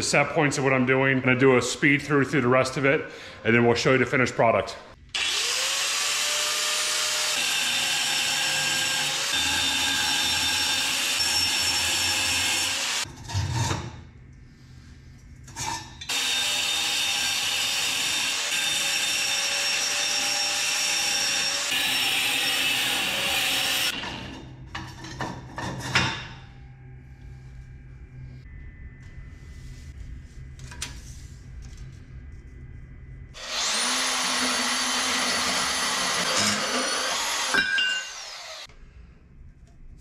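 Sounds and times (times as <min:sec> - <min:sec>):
power tool cutting steel: 0:05.2 - 0:13.1, 0:16.1 - 0:24.0, 0:33.4 - 0:38.7.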